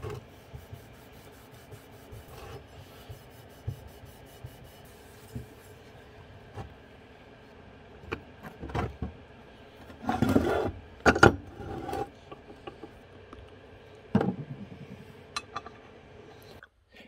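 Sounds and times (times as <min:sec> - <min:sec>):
metal scraping slide: 0:11.5 - 0:12.1.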